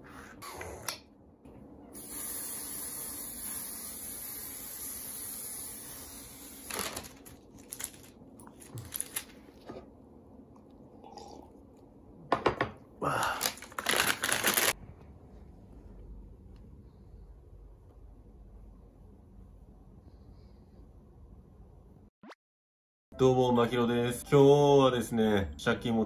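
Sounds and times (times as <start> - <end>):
aerosol spray hiss: 2.0 - 6.7.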